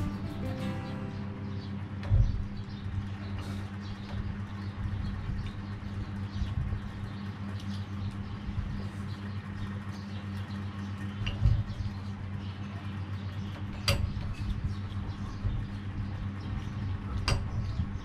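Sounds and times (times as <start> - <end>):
steady low hum: 0.0 - 18.0.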